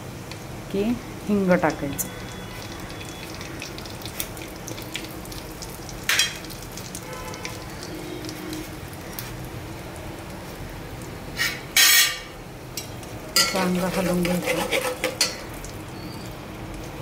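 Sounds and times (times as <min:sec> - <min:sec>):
seeds sizzling in hot oil: 0:00.2 - 0:17.0.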